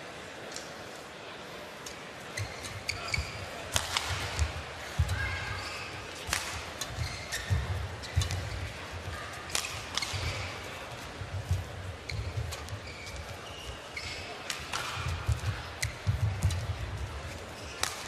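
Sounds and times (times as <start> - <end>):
shoes squeaking and thudding: 2.4 - 3.4, 4.0 - 8.7, 11.4 - 16.8
racket striking shuttlecock: 3.7 - 5.2, 6.2 - 8.7, 9.4 - 10.6, 14.4 - 16.7, 17.7 - 18.0.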